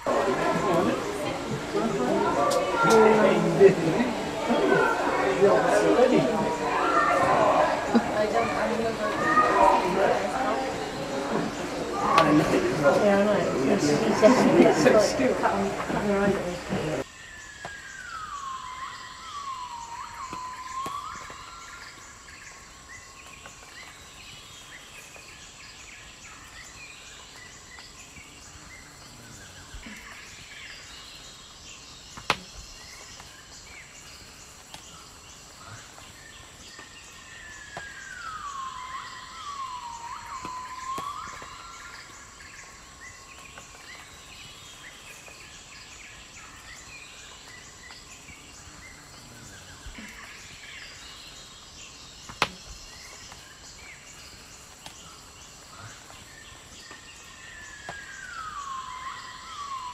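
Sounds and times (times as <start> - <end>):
swooping bird call: 0.0 - 22.2, 37.4 - 42.9, 57.6 - 59.9
small birds chirping: 0.0 - 59.9.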